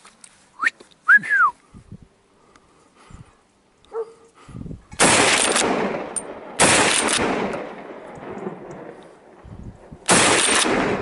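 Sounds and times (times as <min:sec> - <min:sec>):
rifle shots echoing: 0:05.0 - 0:09.4, 0:10.0 - 0:11.0.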